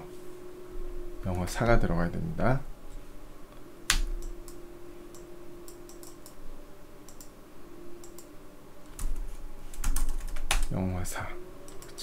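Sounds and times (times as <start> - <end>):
computer mouse clicks: 3.9 - 6.4, 7.0 - 7.3, 8.0 - 8.3, 11.7 - 12.0.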